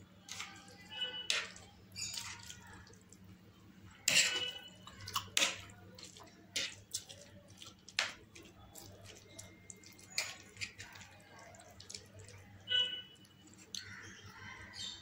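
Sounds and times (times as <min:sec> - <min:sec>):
spoon scraping ceramic plate: 0:04.1 - 0:04.8
chewing and slurping noodles: 0:04.4 - 0:13.9.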